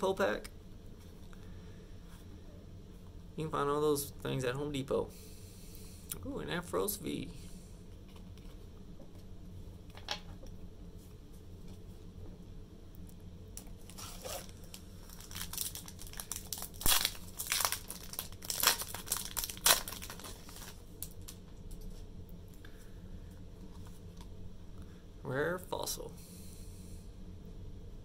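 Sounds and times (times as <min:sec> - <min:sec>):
foil wrapper crinkling and tearing: 0:13.6 - 0:21.4.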